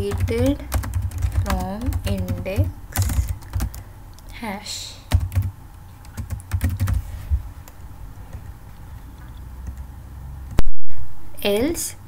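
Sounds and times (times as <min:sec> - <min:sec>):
typing on computer keyboard: 0:00.0 - 0:03.8, 0:05.1 - 0:07.0, 0:09.6 - 0:09.9.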